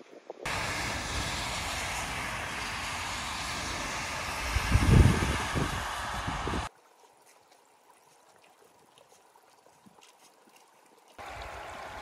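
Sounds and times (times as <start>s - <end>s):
wind buffeting microphone: 0.1s - 6.7s
tyres hissing on wet road: 0.5s - 6.7s, 11.2s - 12.0s.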